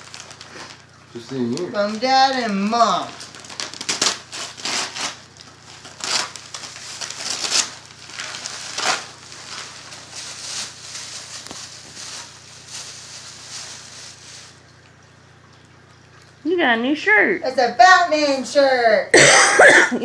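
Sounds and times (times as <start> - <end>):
wrapping paper tearing and crumpling: 0.0 - 14.6.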